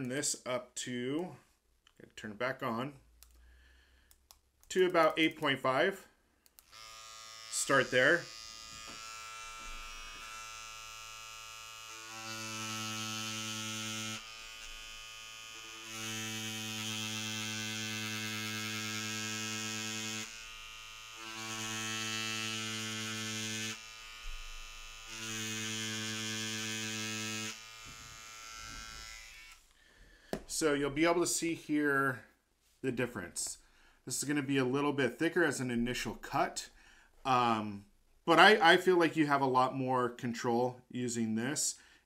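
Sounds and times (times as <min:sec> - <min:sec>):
tattoo machine buzzing: 0:06.6 - 0:29.6.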